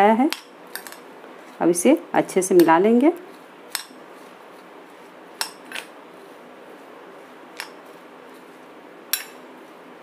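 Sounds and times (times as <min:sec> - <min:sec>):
spoon stirring food in bowl: 0:02.6 - 0:09.5.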